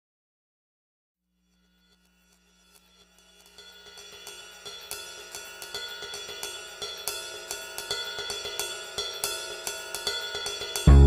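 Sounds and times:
light background music: 9.2s - 11.0s.

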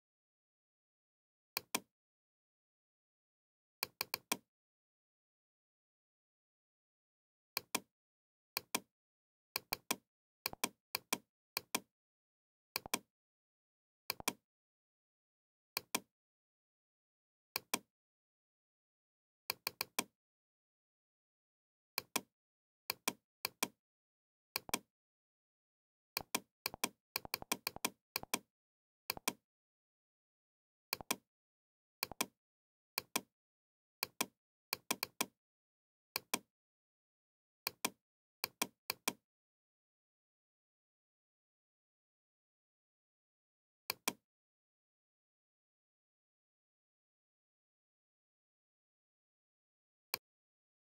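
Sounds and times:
computer mouse clicks: 1.6s - 1.9s, 3.8s - 4.4s, 8.6s - 8.9s, 9.6s - 11.9s, 12.8s - 13.1s, 19.6s - 20.1s, 24.6s - 24.9s, 29.1s - 29.4s, 30.9s - 31.2s, 32.0s - 32.3s, 34.0s - 35.3s, 36.2s - 36.5s.

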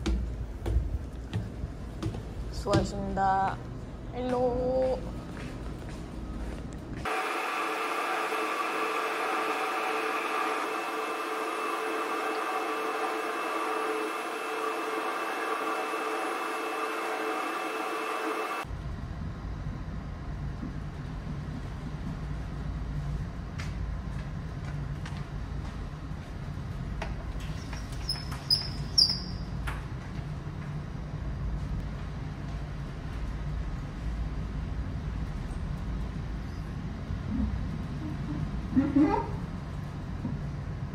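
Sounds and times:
ship machinery humming: 0.0s - 18.7s
ship engine low rumble: 18.5s - 27.4s
short high squeaks: 27.6s - 29.6s.

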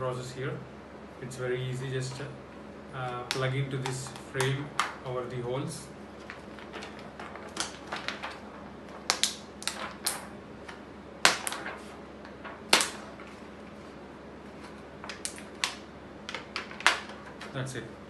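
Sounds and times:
plastic sheet crackling and clicking: 6.2s - 13.5s, 14.6s - 17.7s.

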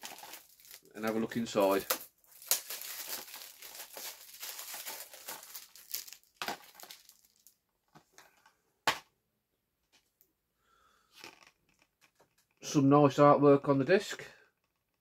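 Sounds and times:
plastic shrink-wrap crinkling: 0.0s - 7.6s.

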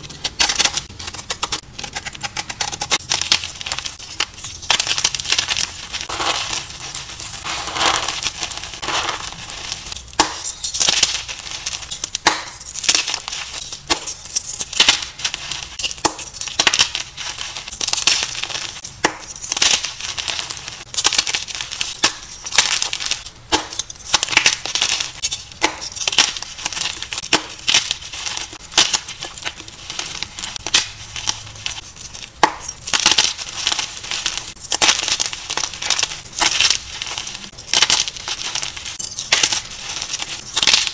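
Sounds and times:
chalk crunching in hands: 0.6s - 23.2s.

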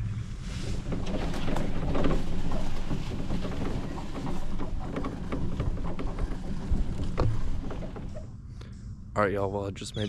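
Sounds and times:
golf cart rumbling: 0.0s - 8.5s
rattles and knocks: 0.5s - 8.4s.

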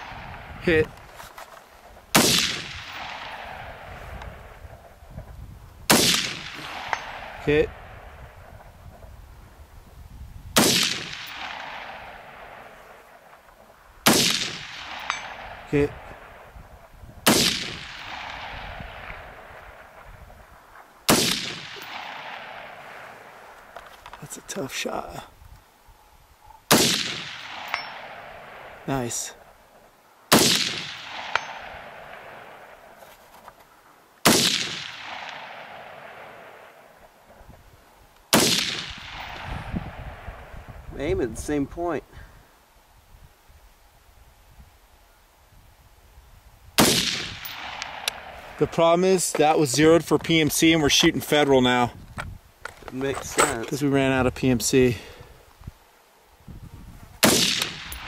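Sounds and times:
gunshot echo: 2.1s - 4.5s, 5.9s - 8.1s, 10.6s - 13.1s, 14.0s - 16.5s, 17.2s - 20.0s, 21.1s - 23.3s, 26.7s - 28.8s, 30.3s - 32.8s, 34.2s - 36.8s, 38.3s - 40.3s, 46.8s - 48.7s, 57.2s - 58.0s
rifle shots: 2.1s - 4.5s, 5.9s - 8.4s, 10.6s - 13.4s, 14.0s - 16.5s, 17.2s - 20.1s, 21.1s - 23.6s, 26.7s - 29.1s, 30.3s - 33.0s, 34.2s - 36.9s, 38.3s - 40.4s, 46.8s - 49.0s, 57.2s - 58.0s.

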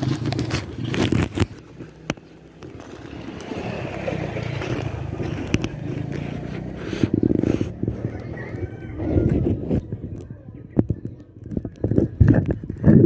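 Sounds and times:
plastic pouch knocking and rubbing: 0.0s - 3.0s.

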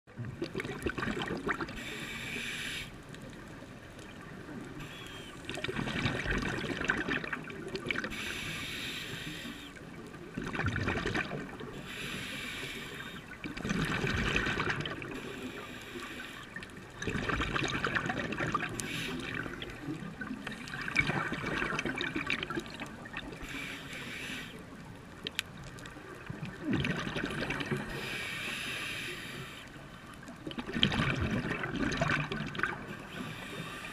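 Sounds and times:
exhaled bubbles gurgling: 0.1s - 2.0s, 3.2s - 8.4s, 9.8s - 12.0s, 13.0s - 15.7s, 16.6s - 23.7s, 24.7s - 28.2s, 30.2s - 33.9s
diver breathing through regulator: 1.8s - 3.0s, 8.1s - 9.8s, 11.8s - 13.3s, 15.1s - 16.6s, 18.8s - 19.7s, 23.4s - 24.6s, 27.8s - 29.7s, 33.0s - 33.9s.

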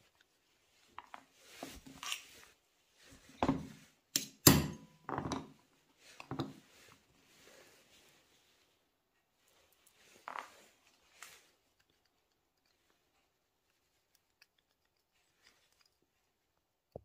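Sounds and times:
small metal parts clicking: 13.7s - 16.1s.

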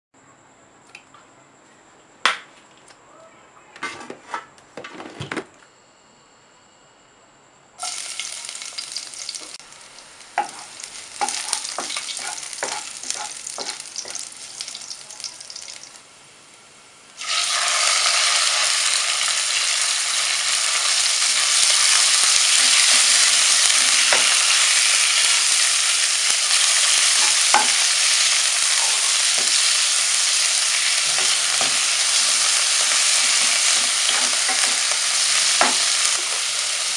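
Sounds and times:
food sizzling in hot oil: 7.8s - 16.1s, 16.9s - 36.9s
spatula scraping a wok: 10.4s - 14.4s, 26.5s - 36.6s.

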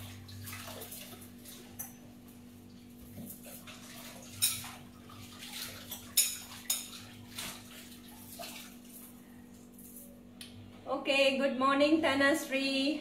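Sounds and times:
tap water running: 0.0s - 9.2s
dishes and cutlery clattering: 0.8s - 2.2s, 3.1s - 7.6s.

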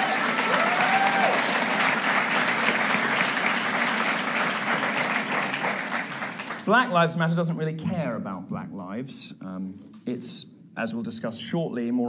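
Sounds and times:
person cheering with a whoop: 0.0s - 1.5s
audience applauding: 0.0s - 6.8s.

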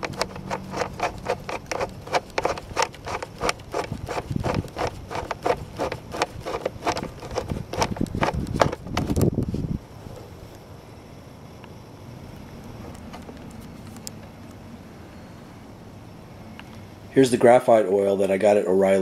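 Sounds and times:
metal nut clicking and scraping: 0.0s - 9.3s.

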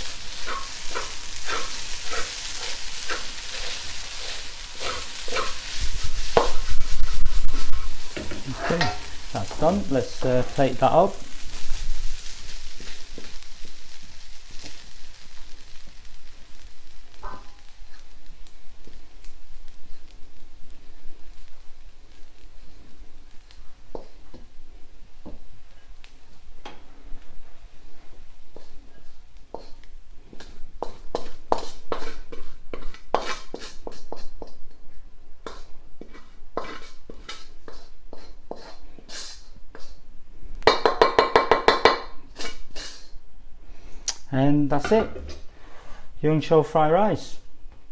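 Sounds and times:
wooden spatula scraping: 0.0s - 18.2s, 27.8s - 34.5s, 35.4s - 40.0s, 44.8s - 46.1s
rice sizzling in a wok: 0.0s - 46.2s
ringing taps on a wok: 40.7s - 42.2s.

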